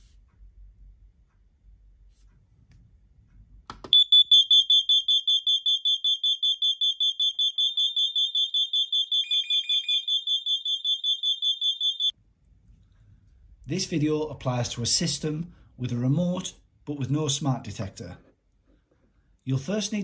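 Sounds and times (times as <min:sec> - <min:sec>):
lower alarm tone: 0:03.9 - 0:12.1
shrill pulsing smoke alarm tone: 0:03.9 - 0:12.1.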